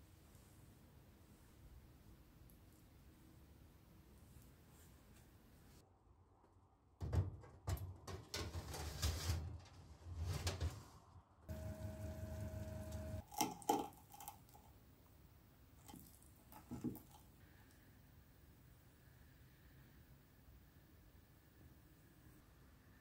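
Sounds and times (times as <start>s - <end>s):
baking tray scraping oven rack: 8.3s - 10.8s
oven humming: 11.5s - 13.2s.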